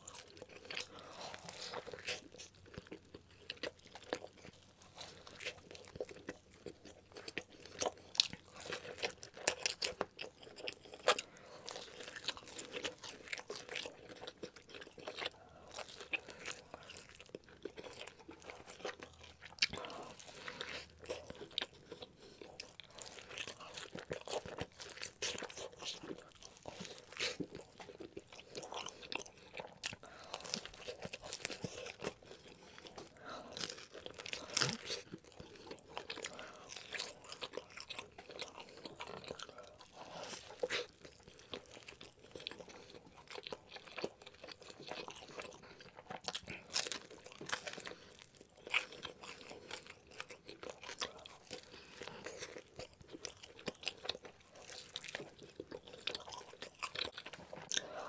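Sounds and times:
chewing and crunching: 0.0s - 58.0s.

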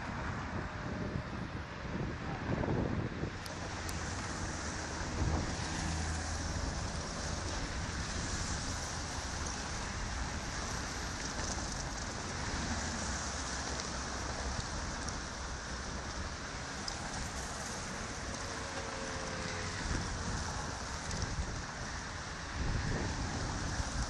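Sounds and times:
cars driving past: 2.7s - 24.0s.

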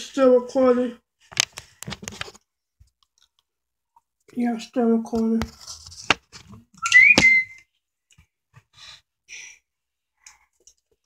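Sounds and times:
soft eating sounds: 2.3s - 4.4s, 10.1s - 11.0s
brief high squeak: 6.8s - 7.6s.

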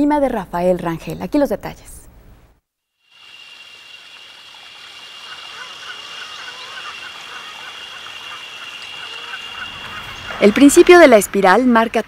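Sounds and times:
steady high whine: 3.0s - 11.5s
hiss: 3.1s - 10.4s
short repeated calls: 3.1s - 10.7s.

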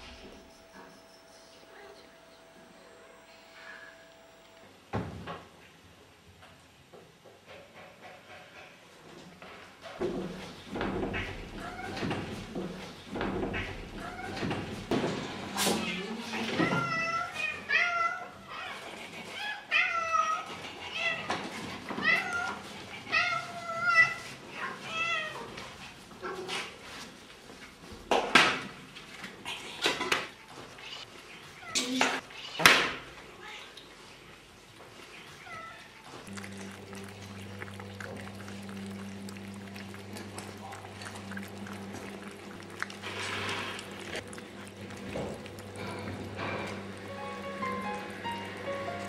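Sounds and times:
cats chewing and lapping food: 6.4s - 49.0s
cats meowing: 15.7s - 25.6s
steady low hum: 36.2s - 49.0s.

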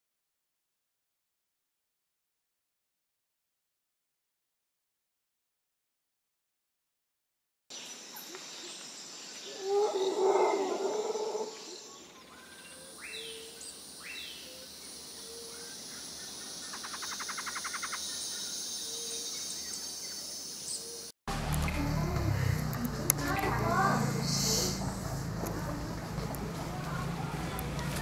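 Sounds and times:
rough animal call: 9.6s - 11.7s
fast bird trill: 16.7s - 18.2s.

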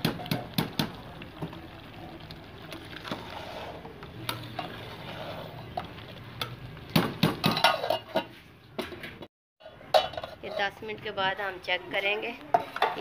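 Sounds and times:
spoon scraping in metal pot: 3.0s - 5.9s, 9.6s - 11.6s.

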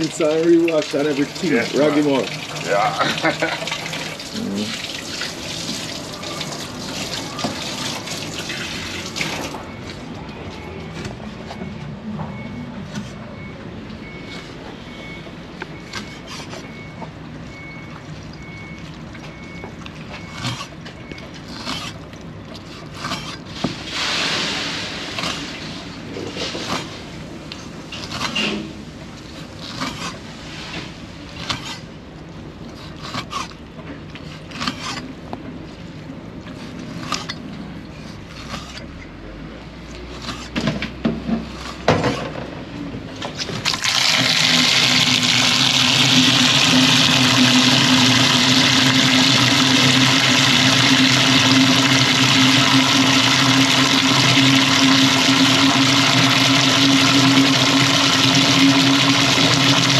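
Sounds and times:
water gushing from pipe: 0.0s - 9.6s, 23.2s - 31.8s, 43.3s - 59.9s.

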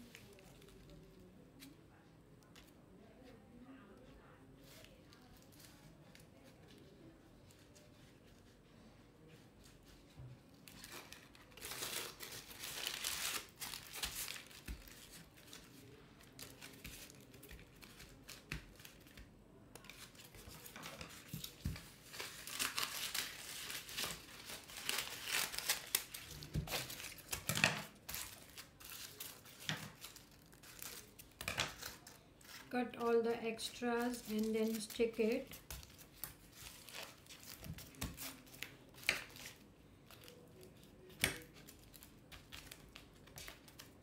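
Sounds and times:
tissue paper crinkling: 10.6s - 19.1s, 19.8s - 32.7s, 33.7s - 41.0s.

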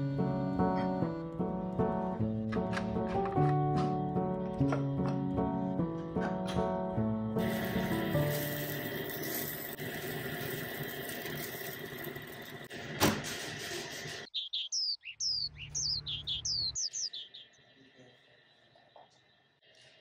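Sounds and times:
fish sizzling on a grill: 7.4s - 12.7s
bird chirping: 14.2s - 19.5s.

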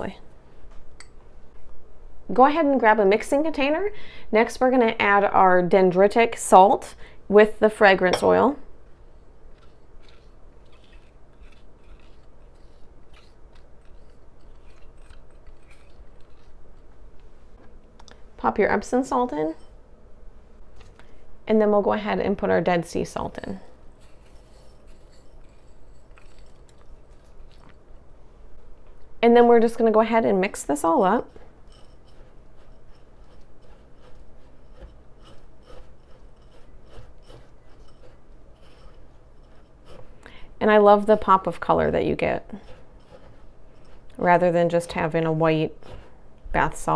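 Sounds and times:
spatula scraping glass bowl: 8.1s - 16.9s, 23.2s - 27.8s, 30.3s - 46.9s.

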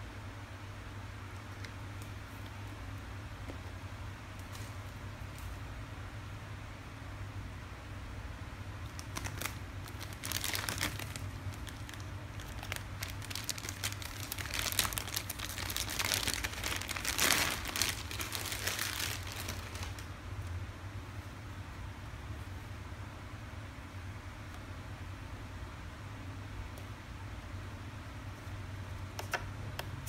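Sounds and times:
plastic bag crinkling: 8.8s - 20.1s.

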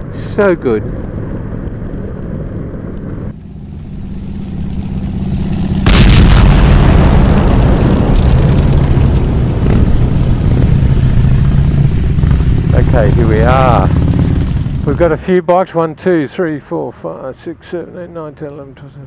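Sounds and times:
motorcycle engine running: 0.0s - 15.3s
wind rumble on microphone: 5.0s - 15.0s.

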